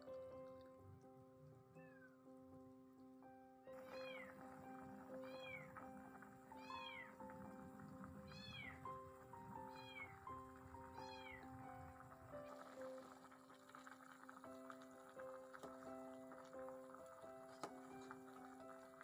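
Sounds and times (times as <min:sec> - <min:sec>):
soft background music: 0:00.0 - 0:19.0
cat meowing: 0:01.8 - 0:02.2, 0:03.8 - 0:04.3, 0:05.2 - 0:05.7, 0:06.6 - 0:07.2, 0:08.3 - 0:08.8.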